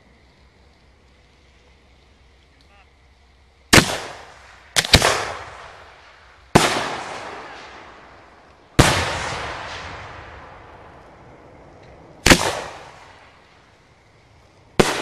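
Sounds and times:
fireworks booming with echo: 3.7s - 15.0s.

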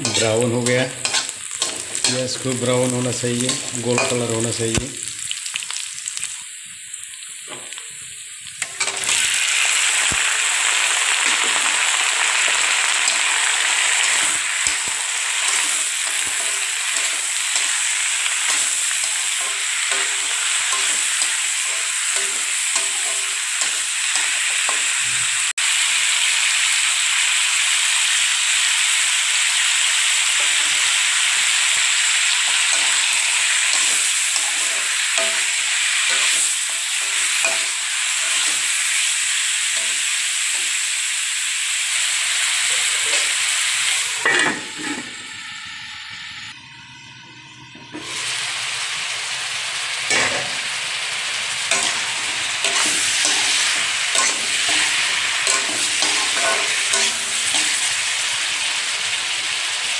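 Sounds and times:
metal spatula stirring: 0.0s - 4.4s, 13.9s - 24.5s, 51.7s - 58.0s
onions sizzling in hot oil: 0.0s - 45.4s, 48.0s - 59.9s.

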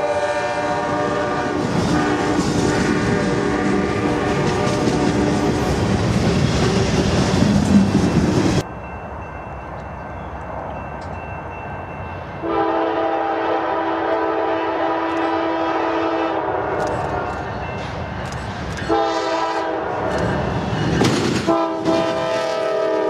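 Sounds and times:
locomotive air horn: 0.0s - 5.7s, 12.4s - 17.4s, 18.9s - 20.3s, 21.4s - 23.0s
train wheels rumbling on rail: 0.0s - 23.0s.

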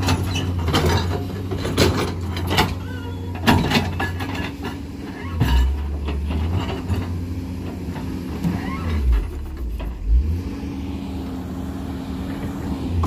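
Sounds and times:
excavator diesel engine: 0.0s - 13.0s
bucket linkage squeals: 5.1s - 5.8s, 8.4s - 9.2s.

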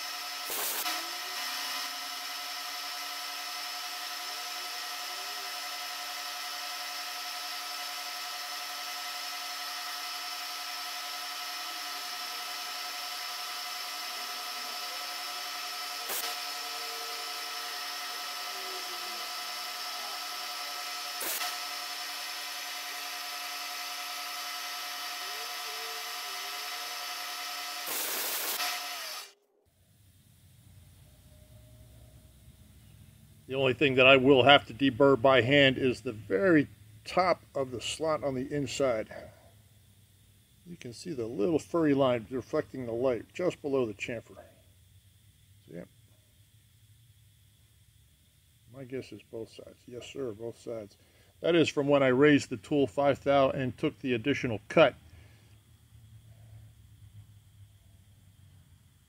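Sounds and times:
milling machine whine: 0.0s - 29.4s.

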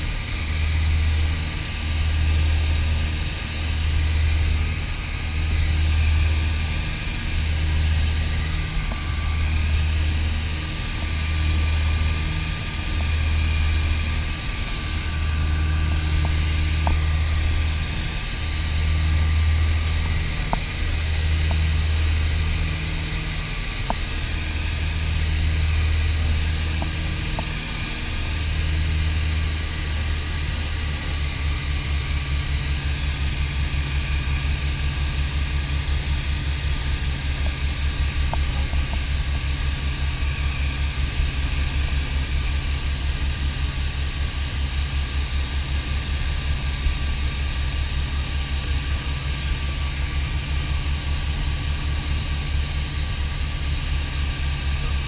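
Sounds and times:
propeller engines droning: 0.0s - 55.0s.

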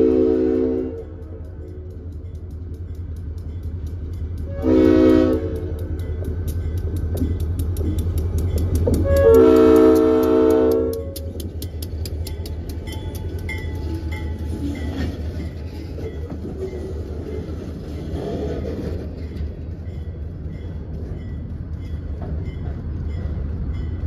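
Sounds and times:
locomotive air horn blast: 0.0s - 1.1s, 4.5s - 5.8s, 9.0s - 11.2s
locomotive engine drone: 0.0s - 24.0s
freight cars clicking by: 5.6s - 24.0s.

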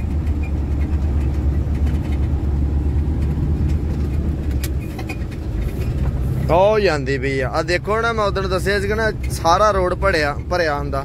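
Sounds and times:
road noise: 0.0s - 11.0s
truck engine rumbling: 0.0s - 11.0s.

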